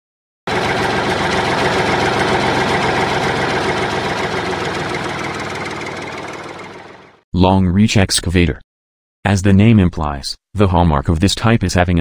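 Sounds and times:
excavator engine idling: 0.5 - 7.2.

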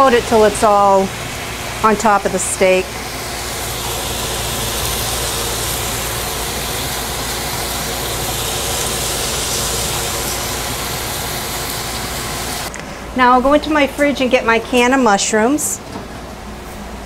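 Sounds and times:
exhaust fan rushing: 0.0 - 17.0
steaks sizzling on grill: 2.7 - 12.7.

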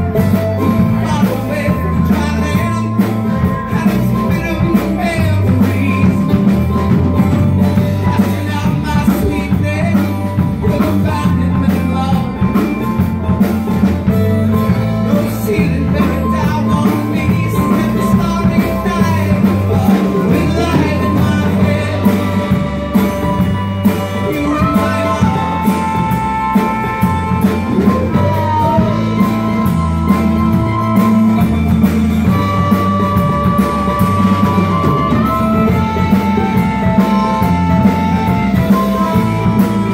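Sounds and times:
man singing lead vocal: 0.0 - 31.0
harmonica long notes: 0.0 - 39.9
rock band playing: 0.0 - 39.9.

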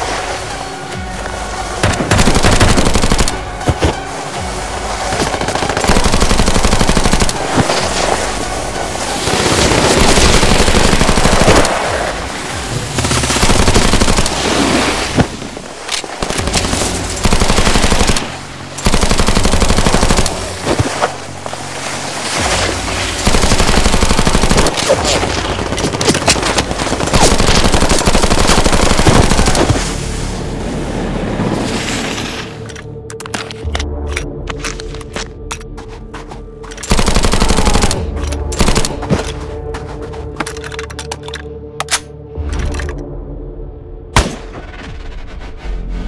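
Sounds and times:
music: 0.0 - 46.0
automatic gunfire: 36.9 - 38.0.

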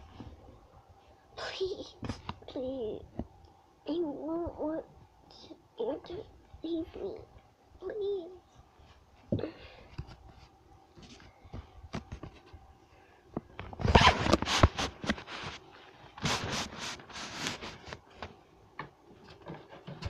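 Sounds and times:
fast scraping and rubbing: 13.8 - 18.0.

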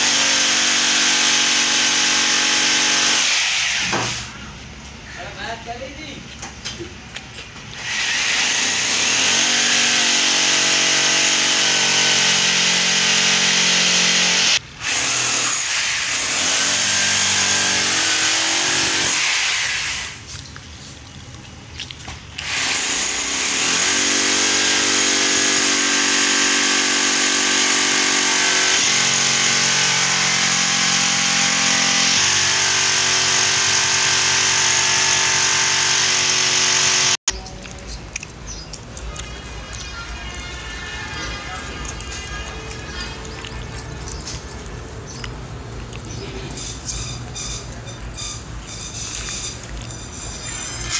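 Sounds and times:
electric drill boring into wall: 0.0 - 4.2, 7.8 - 20.2, 22.4 - 37.3.

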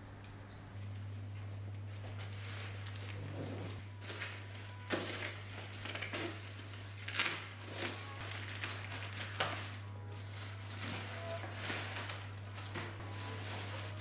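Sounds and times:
steady low hum: 0.0 - 14.0
plastic crinkling and rustling: 1.4 - 14.0
plastic tearing: 2.3 - 14.0.

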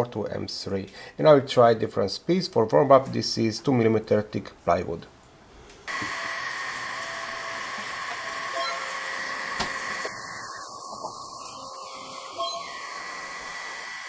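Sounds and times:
fan hiss: 4.4 - 14.0
faint motor whines: 5.9 - 14.0.

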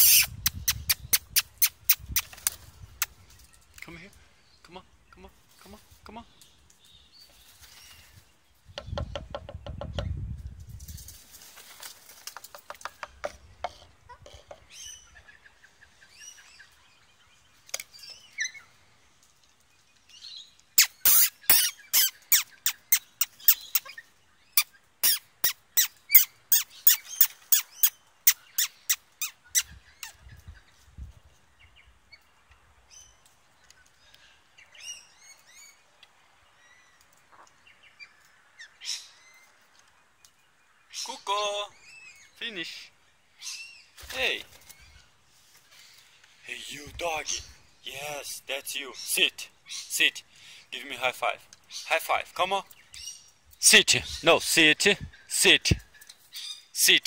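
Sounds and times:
parrot harsh calls: 0.0 - 1.9, 20.8 - 24.0, 25.0 - 30.1
faint small bird chirps: 19.7 - 30.9.

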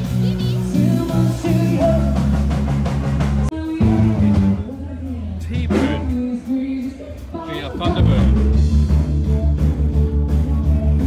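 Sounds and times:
rock music with singing: 0.0 - 11.0.

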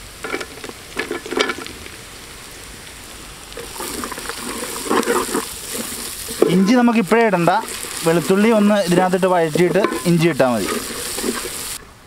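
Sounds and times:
oil sizzling in a pot: 0.0 - 11.8
spatula scraping a metal pot: 3.6 - 7.0, 7.6 - 11.8.

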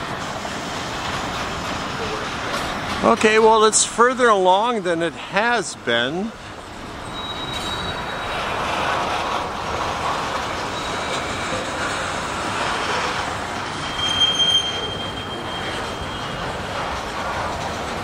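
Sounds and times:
train wheels rumbling on rail: 0.0 - 18.0
high wheel squeal: 5.2 - 17.8.

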